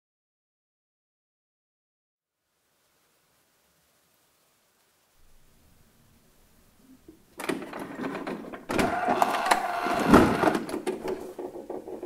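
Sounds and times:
printer mechanism whir: 7.4 - 10.8
plastic creaking and rattling: 7.4 - 12.0.

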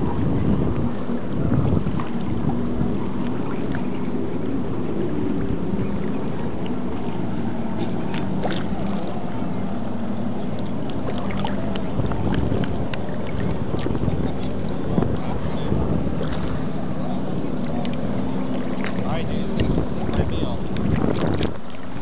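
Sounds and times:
lapping lake water: 0.0 - 22.0
wind buffeting microphone: 0.0 - 22.0
small sharp splashes: 5.4 - 9.9, 10.5 - 14.8, 16.2 - 16.8.

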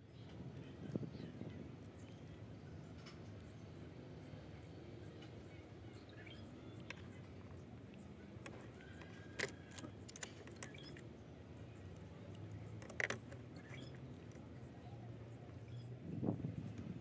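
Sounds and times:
small parts clicking and tapping: 8.4 - 11.1, 11.8 - 14.5.

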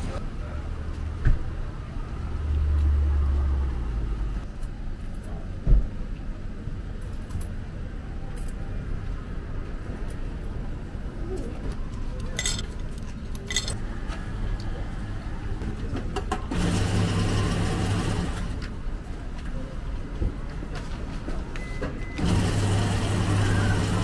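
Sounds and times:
vending machine electric hum: 16.4 - 18.6, 22.1 - 24.0
machine whirring: 22.2 - 24.0.

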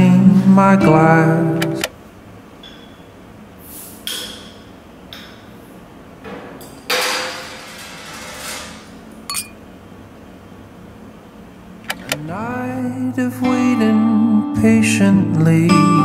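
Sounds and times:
glass bottles knocking and clinking: 9.3 - 9.5
bottles clinking in a toast: 9.3 - 9.6.

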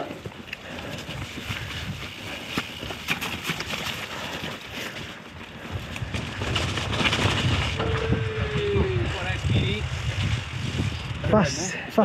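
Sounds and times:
bike clicks and rattles: 0.0 - 11.2
bike tyres on dirt and stones: 0.0 - 12.0
wind on microphone: 5.6 - 11.8.

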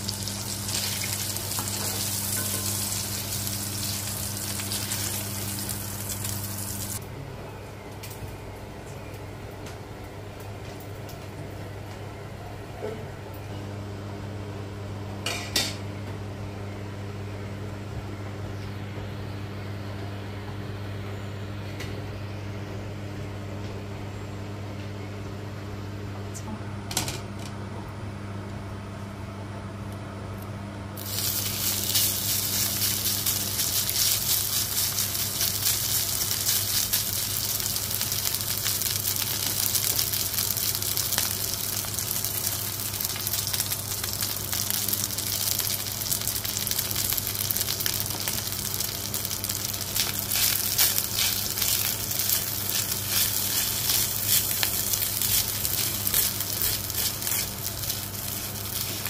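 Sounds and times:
rice sizzling in pan: 0.0 - 7.0, 31.0 - 59.0
steady low hum: 0.0 - 59.0
spatula stirring rice: 50.3 - 59.0.

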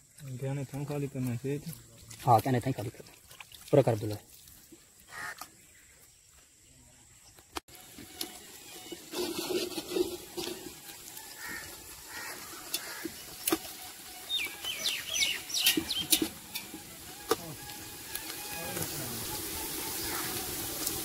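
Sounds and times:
high sliding chirps: 8.3 - 21.0.

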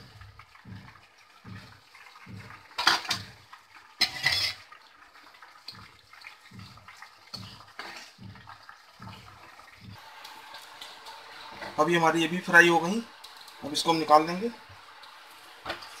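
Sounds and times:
slices sizzling in hot oil: 0.0 - 16.0
spoon scraping and spluttering: 4.0 - 4.7.

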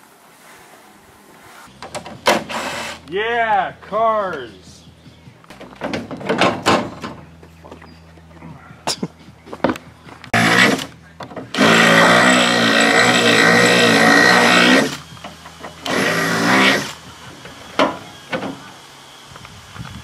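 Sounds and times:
power drill drilling metal: 2.4 - 3.0, 10.4 - 10.9, 11.5 - 15.0, 15.7 - 17.0.

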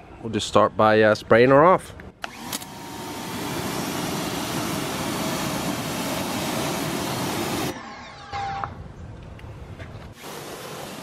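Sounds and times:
pressure washer spraying: 2.3 - 7.7, 10.2 - 11.0.

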